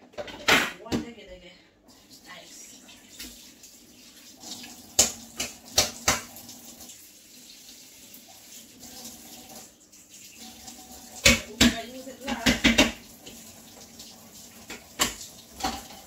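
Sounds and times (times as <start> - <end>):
kitchenware clacking: 0.0 - 1.1, 4.9 - 6.4, 11.2 - 13.0, 14.6 - 16.0
faint kitchen noise: 0.0 - 16.0.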